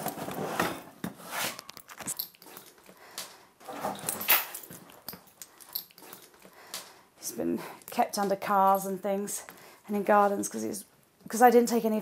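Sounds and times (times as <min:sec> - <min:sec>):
suitcase scraping and rustling: 0:00.0 - 0:01.6, 0:03.6 - 0:04.6.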